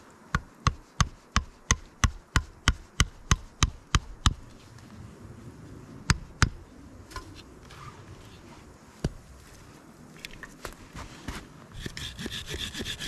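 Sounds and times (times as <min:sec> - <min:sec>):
sharp blows on wood: 0:00.3 - 0:04.4, 0:11.8 - 0:13.0.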